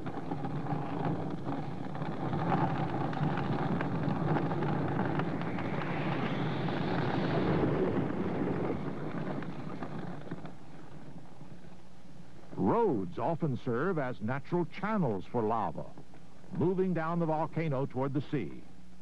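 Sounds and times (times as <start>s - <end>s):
fire roaring: 0.0s - 15.0s
burning timber crackling: 0.0s - 19.0s.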